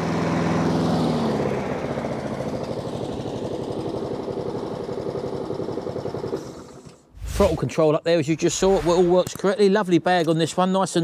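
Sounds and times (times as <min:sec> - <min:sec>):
lawnmower engine idling: 0:00.0 - 0:07.0.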